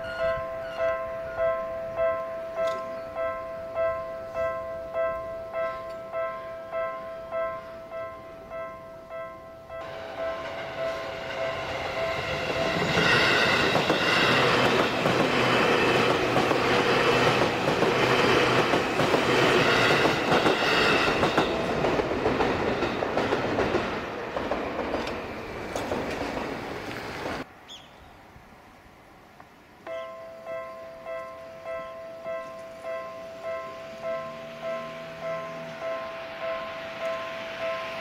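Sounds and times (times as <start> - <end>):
electric train passing: 0.0 - 27.8, 28.5 - 38.0
train wheels clacking on rail joints: 10.2 - 27.4.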